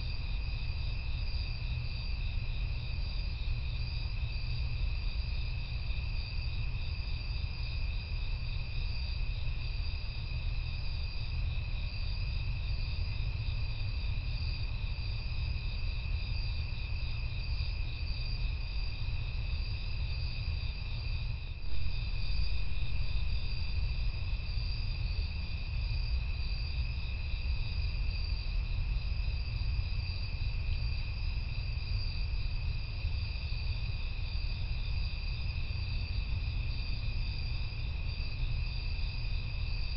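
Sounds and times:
insect trills: 0:00.0 - 0:39.9
low rumble: 0:21.6 - 0:24.8.

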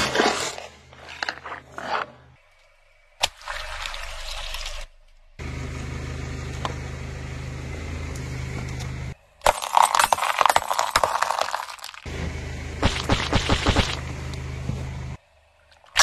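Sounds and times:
car engine running: 0:05.1 - 0:09.2, 0:12.0 - 0:15.2.

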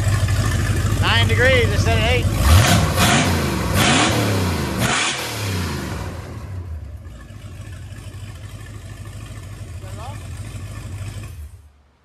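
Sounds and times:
engine revving: 0:00.0 - 0:11.7.

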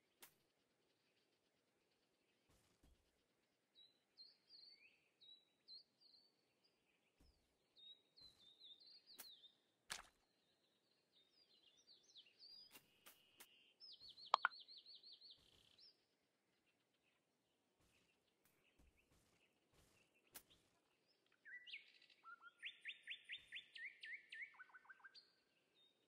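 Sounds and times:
small bird chirping and singing: 0:03.8 - 0:07.0, 0:07.8 - 0:09.6, 0:10.4 - 0:16.1, 0:20.2 - 0:26.0
sharp clicks: 0:14.4 - 0:14.6.

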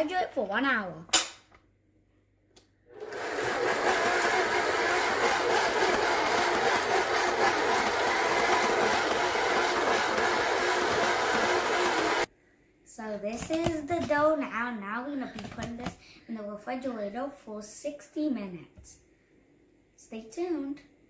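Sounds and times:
electric stand mixer running: 0:02.9 - 0:12.3.

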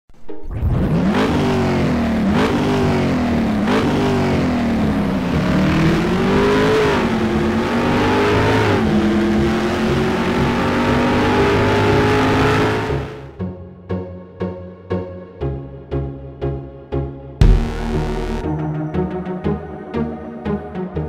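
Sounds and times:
car engine revving: 0:00.5 - 0:13.4.

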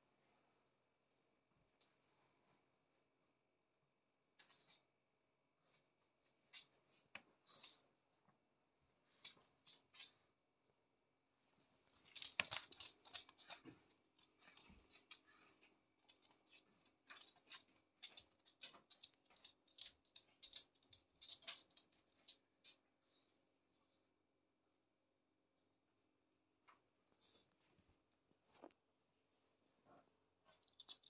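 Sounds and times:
animal claws clicking on hard floor: 0:11.9 - 0:22.8, 0:30.6 - 0:31.0.

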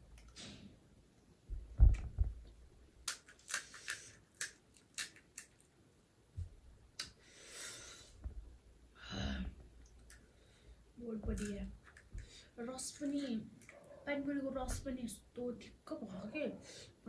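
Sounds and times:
low thump: 0:01.5 - 0:02.4
crisp shells cracking: 0:03.0 - 0:05.8.

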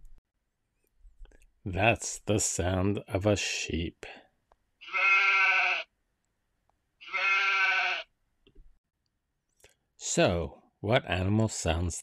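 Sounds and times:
sheep bleating: 0:04.8 - 0:05.9, 0:07.0 - 0:08.1.

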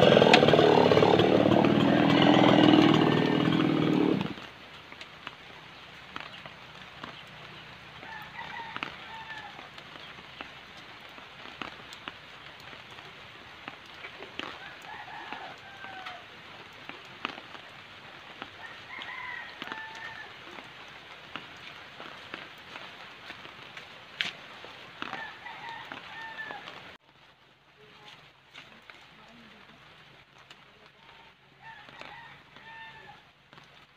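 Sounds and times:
rooster crowing: 0:00.0 - 0:04.3, 0:08.0 - 0:09.7, 0:14.5 - 0:16.2, 0:18.6 - 0:20.4, 0:25.0 - 0:26.7, 0:31.6 - 0:33.3.

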